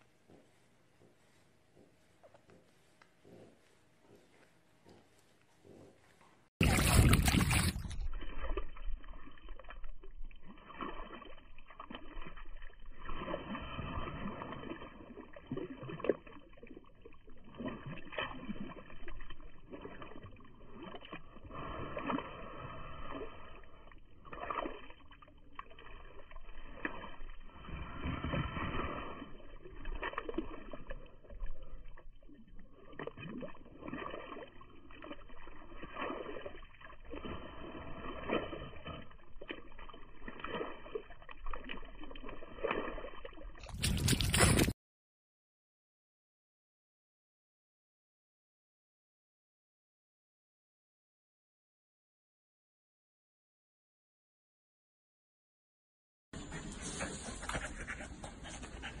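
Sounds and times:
wet mud squelching: 6.6 - 44.8.

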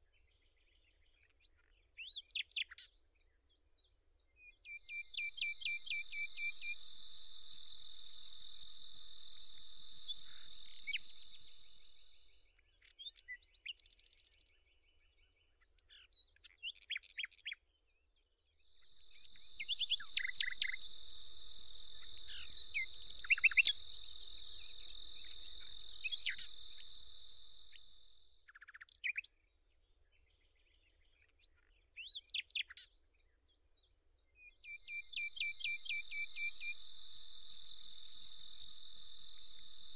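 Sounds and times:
short bird chirps: 4.5 - 14.6, 18.7 - 29.4, 34.5 - 39.9
insect singing in rapid pulses: 4.9 - 12.4, 18.7 - 28.4, 34.7 - 39.9.

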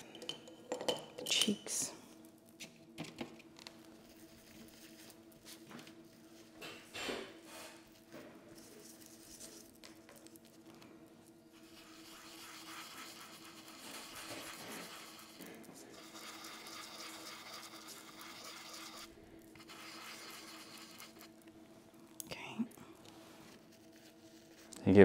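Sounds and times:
dry brush scrubbing: 11.6 - 15.4, 16.0 - 21.2.

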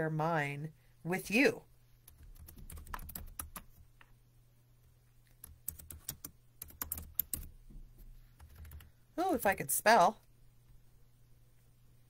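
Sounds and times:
typing on computer keyboard: 2.0 - 3.8, 5.3 - 7.5, 8.4 - 8.9.

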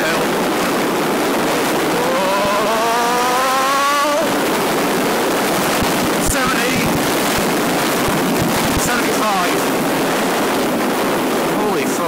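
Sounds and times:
motorcycle engine revving: 0.0 - 6.3
wind rush on microphone: 0.0 - 12.0.

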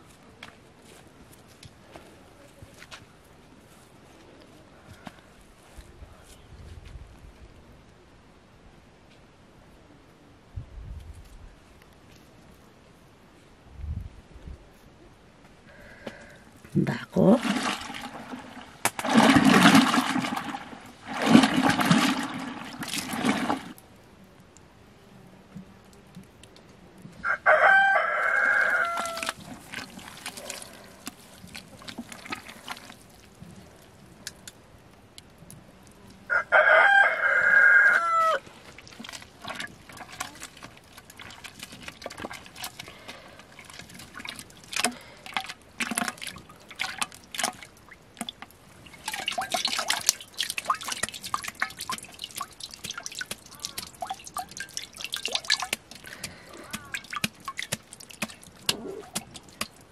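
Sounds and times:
rooster crowing: 27.2 - 29.3, 36.3 - 38.4
butter splashing and dripping: 38.6 - 59.9.

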